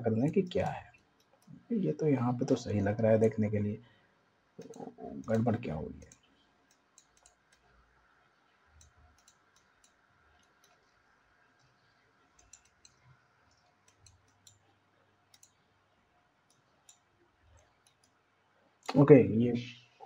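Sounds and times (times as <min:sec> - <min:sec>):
computer mouse clicks: 0:04.6 - 0:07.7, 0:08.8 - 0:11.0, 0:11.6 - 0:15.6, 0:16.5 - 0:18.2.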